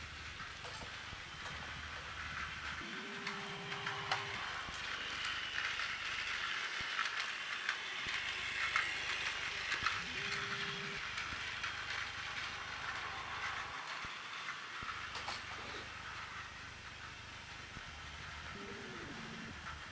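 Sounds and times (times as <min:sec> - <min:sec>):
toy train motors whirring: 0:00.0 - 0:19.9
wheels clicking over track joints: 0:00.4 - 0:16.2.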